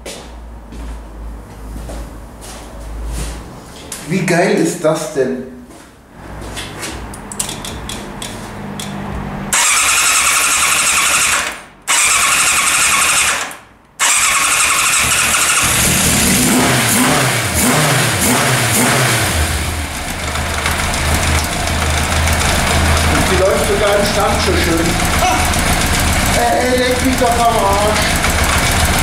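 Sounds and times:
motorcycle engine starting and revving: 0:06.2 - 0:29.0
motorcycle engine idling: 0:19.8 - 0:29.0.

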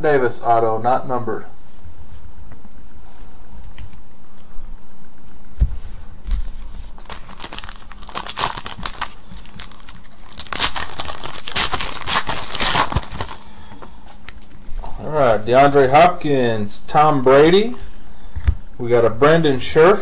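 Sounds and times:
wrapper torn and crinkled: 0:06.4 - 0:14.6.

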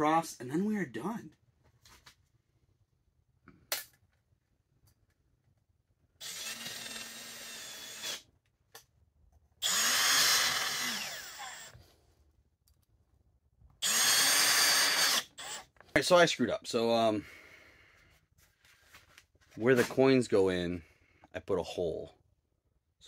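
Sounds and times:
cordless drill motor whine: 0:06.2 - 0:08.3, 0:09.6 - 0:11.8, 0:13.8 - 0:15.8.

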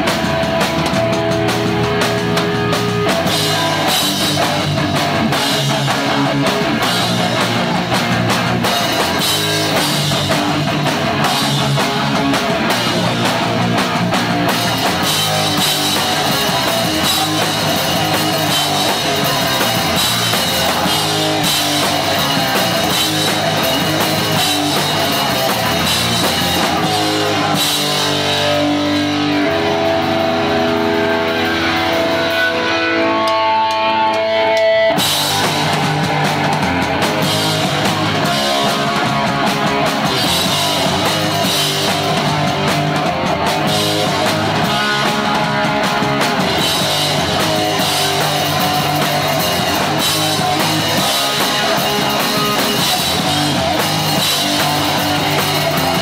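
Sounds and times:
distorted electric guitars: 0:00.0 - 0:56.0
pounding drum kit: 0:00.0 - 0:56.0
punk band playing live: 0:00.0 - 0:56.0.

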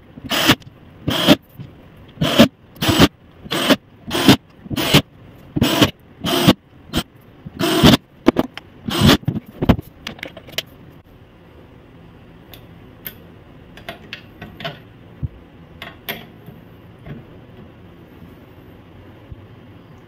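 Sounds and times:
audio mixer clunks and rattles: 0:09.2 - 0:10.7.

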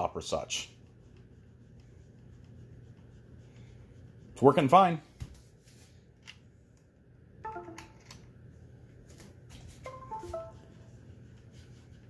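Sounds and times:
laptop usb chime: 0:07.5 - 0:08.1, 0:09.9 - 0:10.7.

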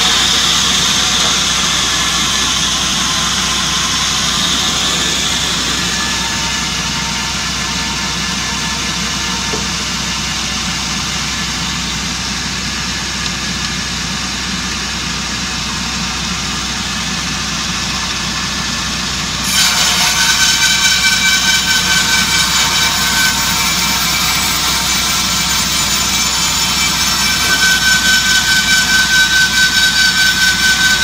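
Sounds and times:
band saw blade sawing log: 0:00.0 - 0:11.7, 0:19.4 - 0:31.0.

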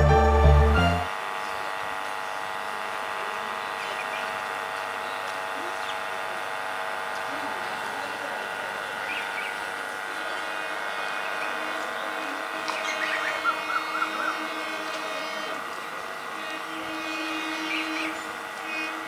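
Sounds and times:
steady hum of even tones: 0:00.0 - 0:19.0
birds chirping: 0:03.6 - 0:06.2, 0:08.8 - 0:16.6, 0:17.3 - 0:19.0.

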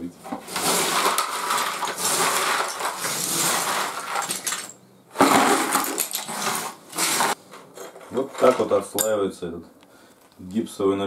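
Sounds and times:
floor screed scraping: 0:00.2 - 0:07.4.

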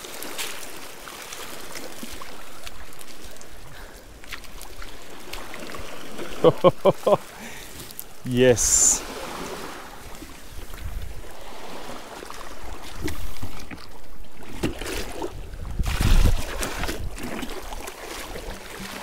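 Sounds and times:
seawater splashing: 0:00.0 - 0:19.0
wind buffeting microphone: 0:09.1 - 0:12.0, 0:14.8 - 0:17.9.

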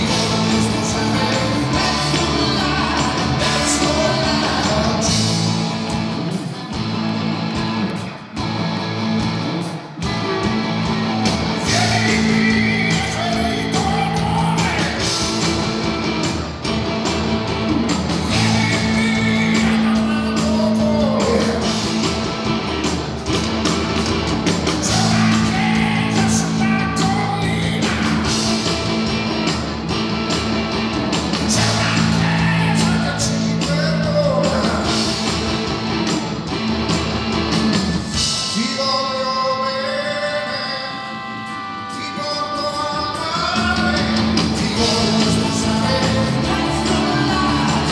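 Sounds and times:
man singing: 0:00.0 - 0:05.4, 0:11.6 - 0:15.4, 0:18.3 - 0:22.0, 0:24.8 - 0:28.6, 0:31.5 - 0:35.2, 0:38.2 - 0:47.9
live rock band playing: 0:00.0 - 0:47.9.

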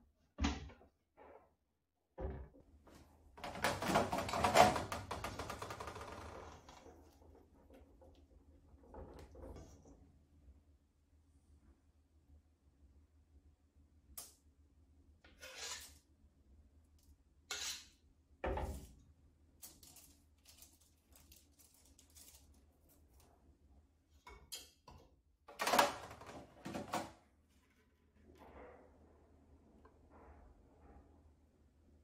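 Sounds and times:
spatula scraping metal bowl: 0:15.3 - 0:16.0, 0:17.5 - 0:18.0.

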